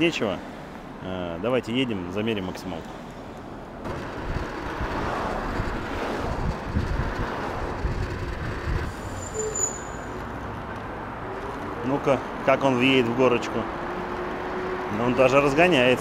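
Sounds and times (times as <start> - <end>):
road rush: 0.0 - 16.0
wind buffeting the microphone: 3.9 - 9.0.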